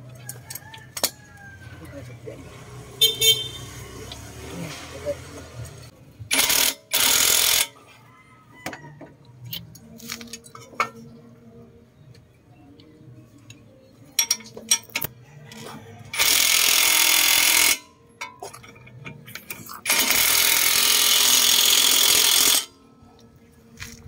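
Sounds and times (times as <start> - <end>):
impact wrench running: 6.3 - 7.7, 16.2 - 17.9, 19.9 - 22.7
metal tools clinking: 14.1 - 15.1.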